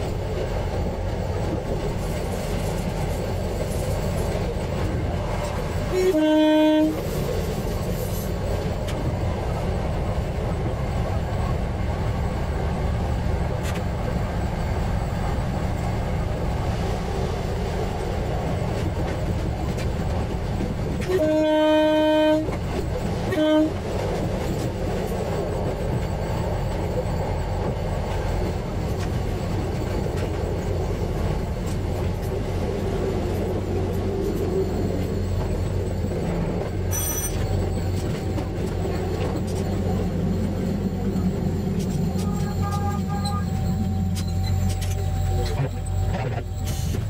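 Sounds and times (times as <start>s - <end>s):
railcar engine and wheel rumble: 0.0s - 47.0s
train horn blasts: 5.8s - 7.1s, 21.0s - 22.6s, 23.2s - 23.8s, 42.1s - 44.0s.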